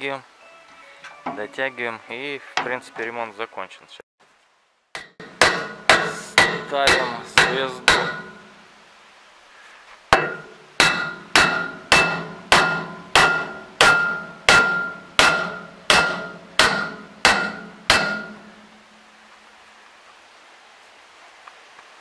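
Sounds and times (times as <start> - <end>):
mallet blows with metallic ring: 5.0 - 8.6, 10.2 - 18.8.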